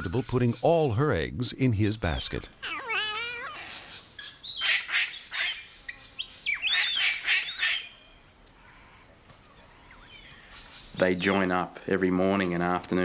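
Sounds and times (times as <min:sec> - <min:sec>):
cockatoo squawking: 0:02.2 - 0:05.7, 0:06.5 - 0:07.9.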